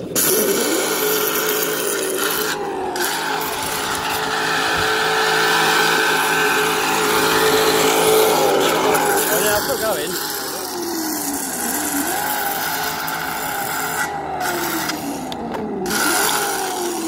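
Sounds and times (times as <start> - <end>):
motor whine: 0.0 - 17.0
tyres rasping on ground: 0.0 - 17.0.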